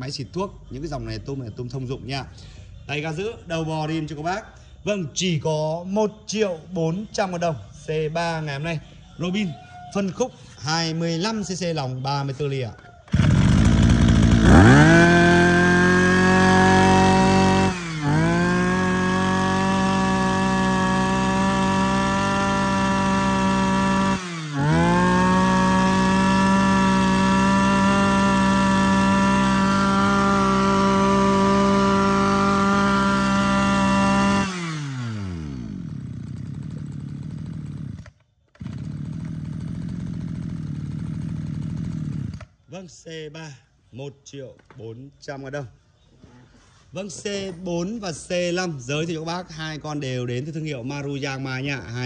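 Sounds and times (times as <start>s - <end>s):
brush-cutter engine revving: 13.1s - 42.6s.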